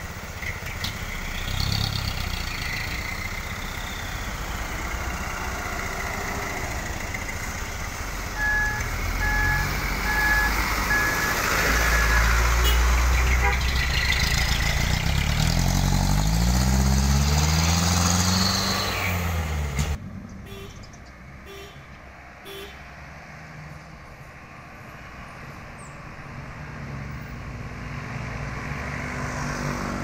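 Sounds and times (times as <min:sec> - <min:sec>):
diesel truck passing: 0:00.0 - 0:30.0
road noise: 0:00.0 - 0:30.0
truck engine approaching: 0:00.0 - 0:30.0
horn toots: 0:08.4 - 0:13.9, 0:20.4 - 0:22.9.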